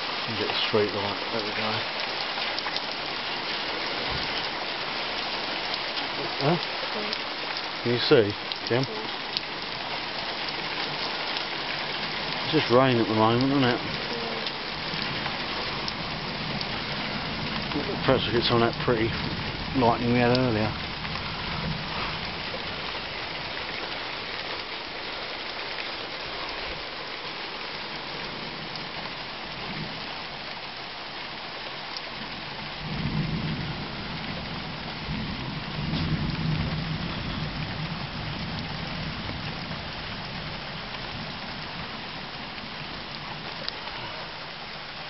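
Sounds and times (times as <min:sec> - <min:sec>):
heavy rain on a trailer: 0:00.0 - 0:45.0
low rumbles of thunder: 0:08.0 - 0:24.6, 0:32.1 - 0:44.3.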